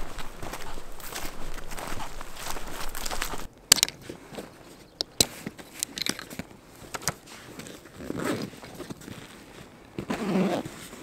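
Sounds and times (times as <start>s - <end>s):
nylon backpack rustling: 0.0s - 3.5s, 4.2s - 11.0s
buckle and strap clicks: 5.0s - 8.8s.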